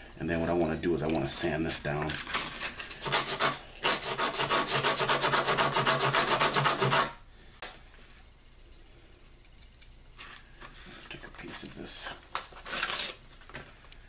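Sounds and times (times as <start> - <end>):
bone rasping on sandpaper: 3.0 - 7.2.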